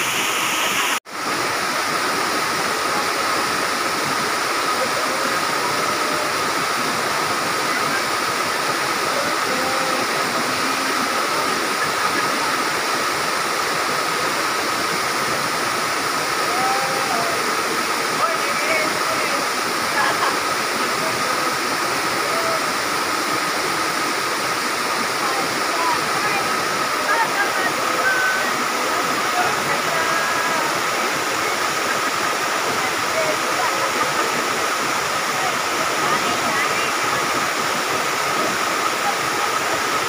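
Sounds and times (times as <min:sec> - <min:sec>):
waterfall rushing: 0:00.0 - 0:40.0.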